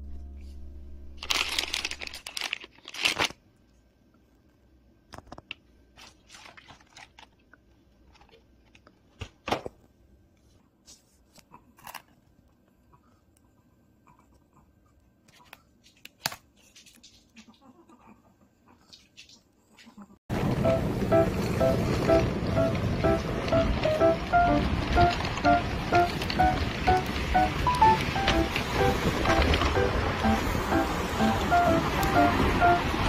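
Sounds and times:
plastic wrappers crinkling: 1.2 - 3.4, 5.3 - 9.3.

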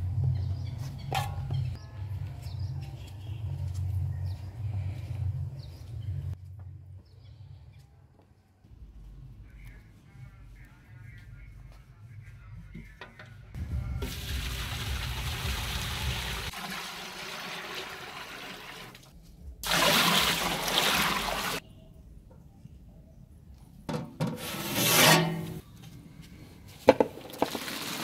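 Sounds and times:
water pouring into metal pot: 14.0 - 19.0, 19.6 - 21.6, 27.2 - 28.0.

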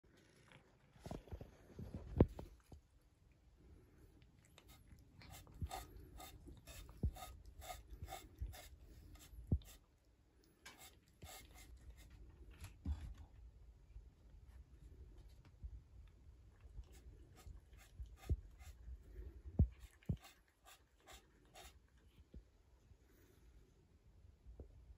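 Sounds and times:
cat crunching dry kibble: 4.2 - 9.1.

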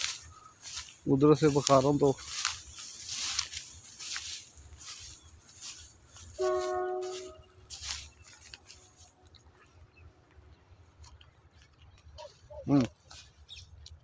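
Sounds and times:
horn chord: 6.3 - 7.7.

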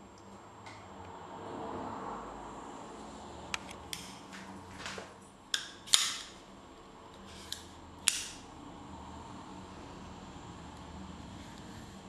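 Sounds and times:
switchblade metallic clicks: 5.5 - 6.4, 7.1 - 8.5.

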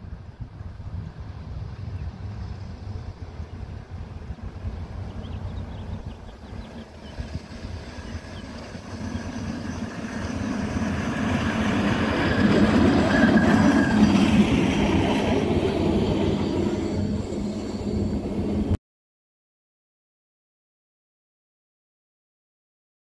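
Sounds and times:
faint wheel squeal: 12.1 - 14.6, 16.3 - 18.4.

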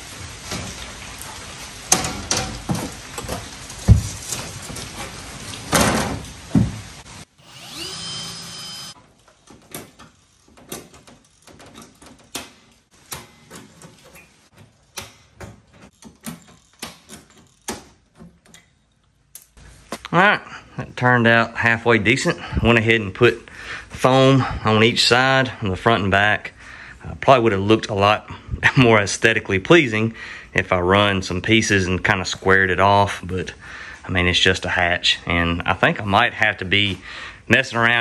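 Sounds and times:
cordless drill whining: 7.4 - 9.0.

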